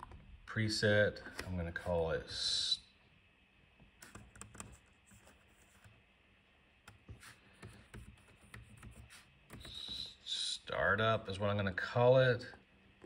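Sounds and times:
laptop keyboard typing: 4.0 - 6.0, 6.8 - 10.1.

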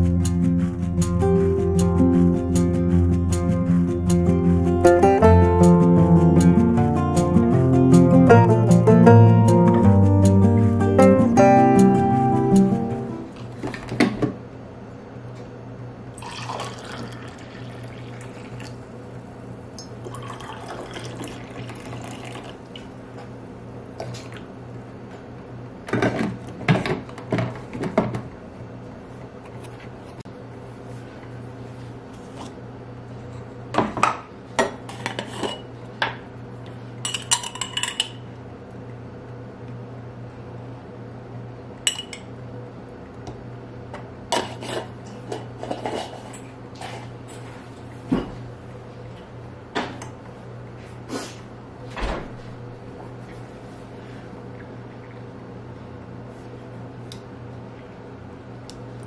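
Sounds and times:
steady low hum: 0.0 - 59.0
coffee pouring into cups: 16.2 - 18.8, 19.9 - 22.9.

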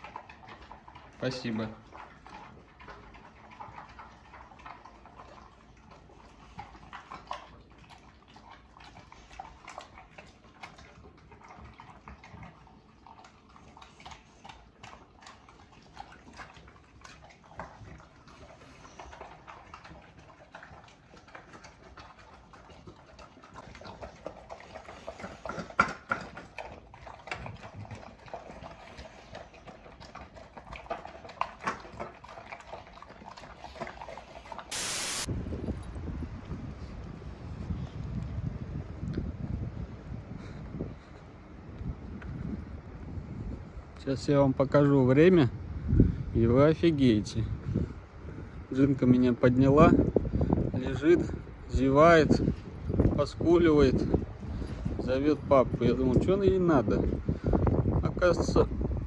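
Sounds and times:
dogs lapping and smacking: 0.0 - 35.2, 36.0 - 59.0.

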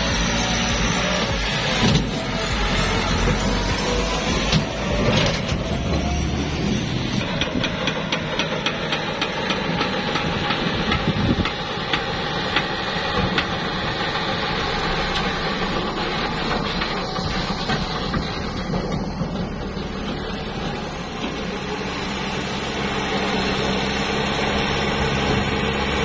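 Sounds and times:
tractor diesel engine running: 0.0 - 26.0.

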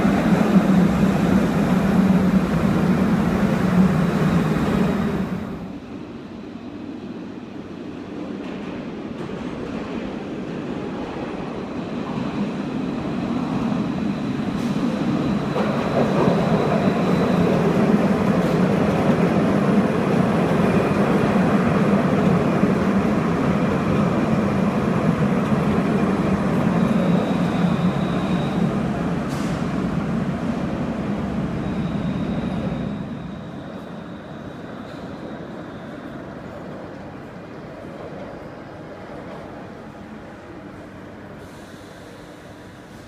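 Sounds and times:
tram wheels rumbling: 0.0 - 5.8, 8.1 - 41.0.

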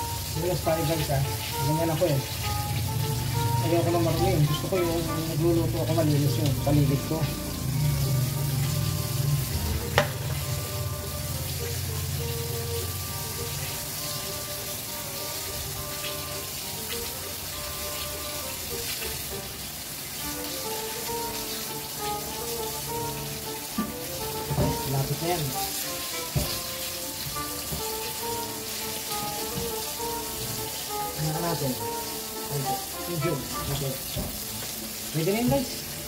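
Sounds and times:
background music: 0.0 - 36.0
oil sizzling while deep-frying: 0.0 - 36.0.

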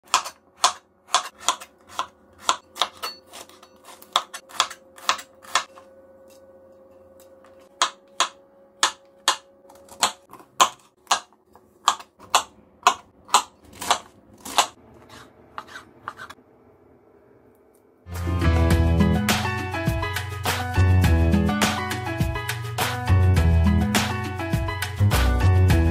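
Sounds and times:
knife chopping on plastic board: 0.0 - 5.7, 7.7 - 16.3.

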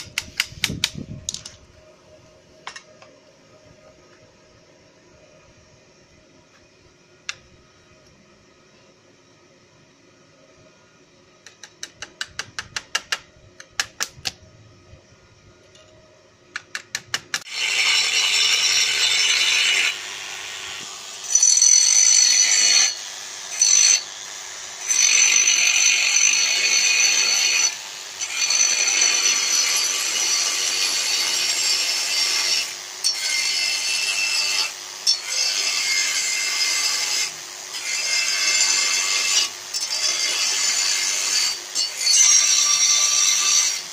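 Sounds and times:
angle grinder cutting steel: 16.6 - 43.9.

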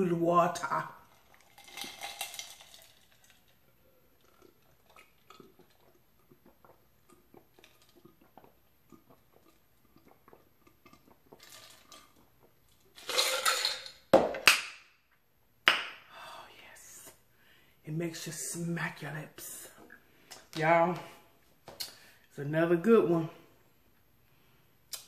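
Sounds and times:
gulping and swallowing: 4.1 - 12.6.

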